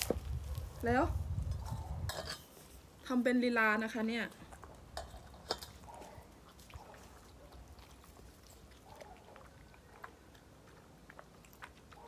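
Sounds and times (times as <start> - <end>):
dog eating from plastic bowl: 4.3 - 12.0.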